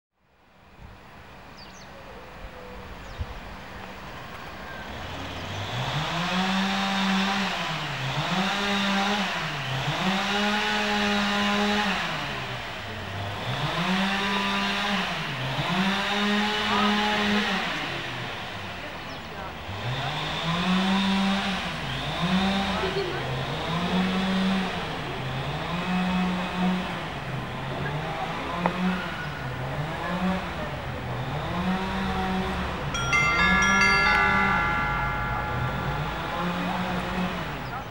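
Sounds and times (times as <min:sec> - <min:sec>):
engine revving up and down: 0:05.0 - 0:12.3.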